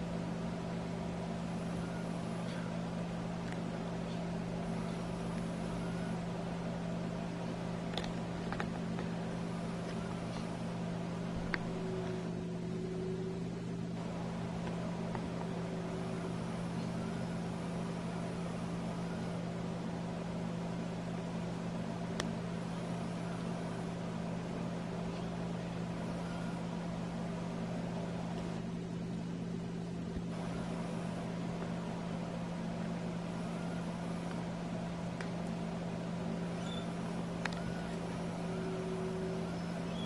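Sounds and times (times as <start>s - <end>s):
low electrical hum: 0.0s - 40.0s.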